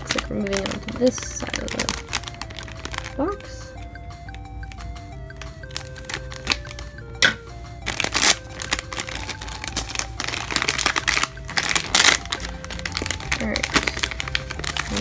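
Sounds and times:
foil bag crinkling: 0.0 - 6.9, 7.8 - 15.0
background music: 0.0 - 15.0
scissors snipping foil: 7.9 - 15.0.

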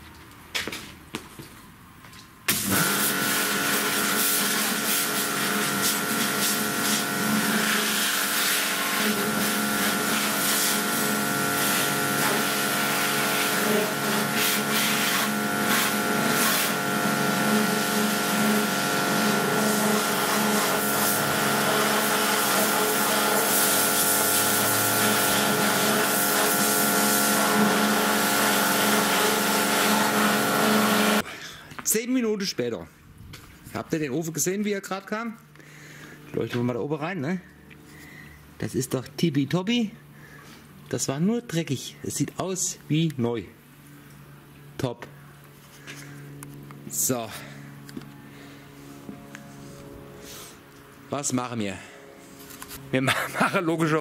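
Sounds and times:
machine humming: 2.5 - 31.2, 45.2 - 54.0
pressure washer jet hissing: 2.5 - 31.2.

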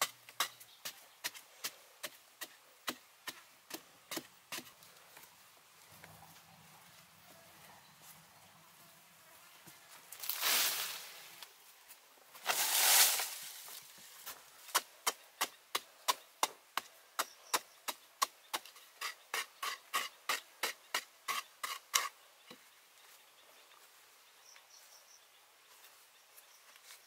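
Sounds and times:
sandy soil thrown swoosh: 10.3 - 11.2, 12.4 - 13.6.

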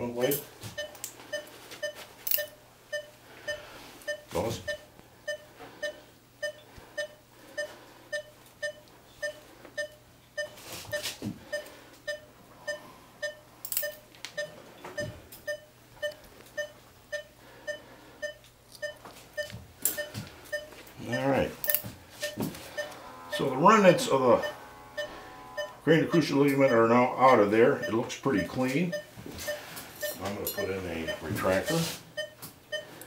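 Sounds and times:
patient monitor beeping: 0.7 - 33.0.

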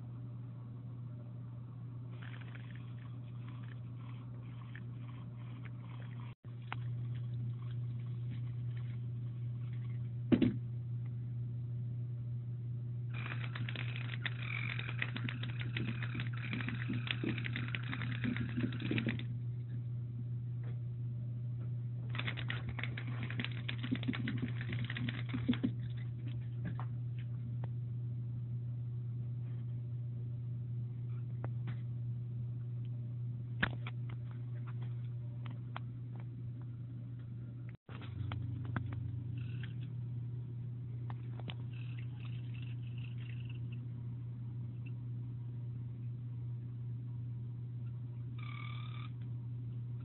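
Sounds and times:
steady low hum: 0.0 - 50.0
toy rapid clicking rattle: 13.2 - 19.2, 22.1 - 25.7.

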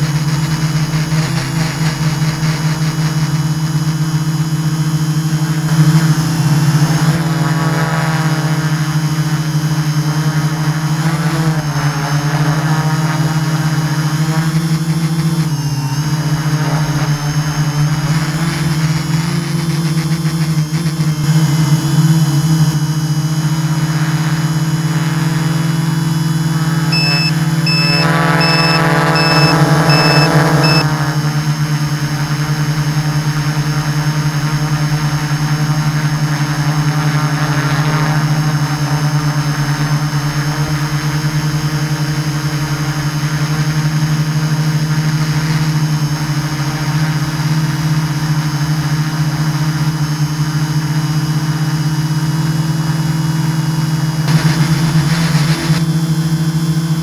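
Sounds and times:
high whine: 26.9 - 30.8, 54.3 - 56.5
drone motors buzzing: 27.0 - 30.8.

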